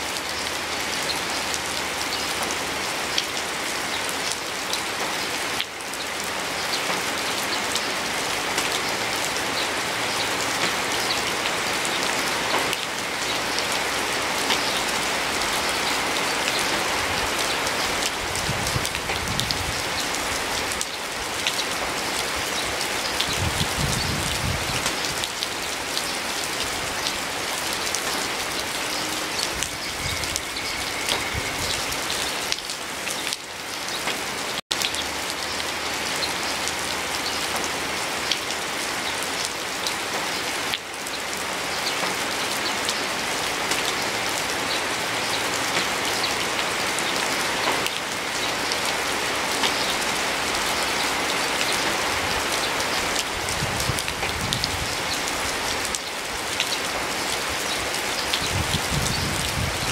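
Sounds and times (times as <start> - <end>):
raindrops ticking: 0.0 - 43.1
steady rain hiss: 0.0 - 59.9.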